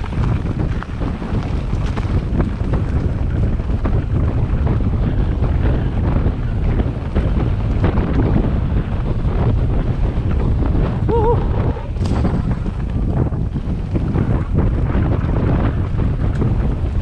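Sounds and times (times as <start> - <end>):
bike rattling over bumps: 0.0 - 17.0
wind buffeting microphone: 0.0 - 17.0.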